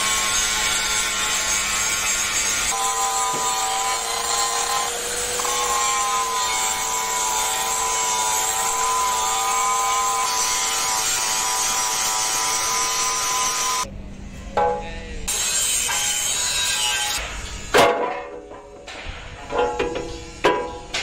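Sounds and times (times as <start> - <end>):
angle grinder grinding metal: 0.0 - 13.9.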